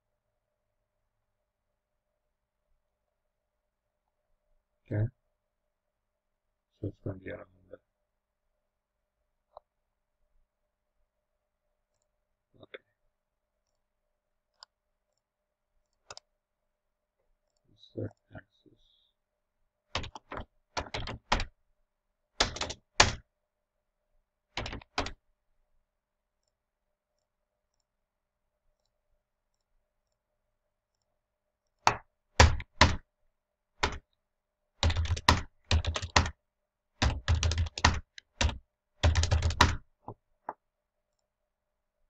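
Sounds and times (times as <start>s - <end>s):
computer keyboard typing: 19.9s - 21.5s, 22.4s - 23.2s, 24.6s - 25.2s, 31.8s - 33.0s, 33.8s - 34.1s, 34.8s - 36.4s, 37.0s - 39.9s.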